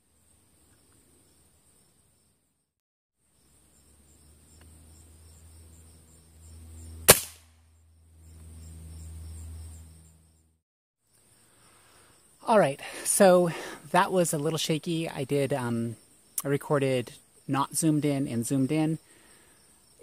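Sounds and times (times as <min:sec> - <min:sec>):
air rifle shot crack: 0:07.0 - 0:07.6.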